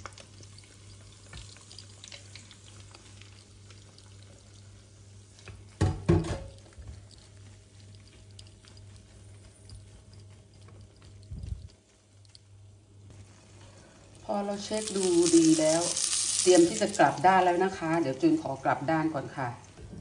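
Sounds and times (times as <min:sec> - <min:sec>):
egg sizzling in oil: 0:00.0 - 0:19.4
steady low hum: 0:06.4 - 0:20.0.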